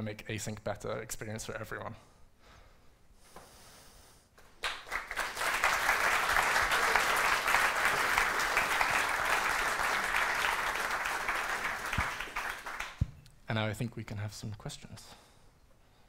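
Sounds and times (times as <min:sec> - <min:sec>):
audience applauding: 0:04.6 - 0:13.0.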